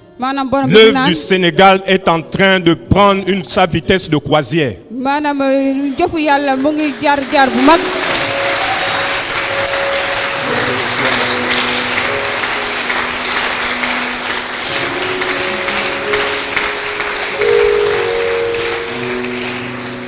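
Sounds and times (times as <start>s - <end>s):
congregation clapping: 6.0s - 20.0s
music with long chords: 7.8s - 20.0s.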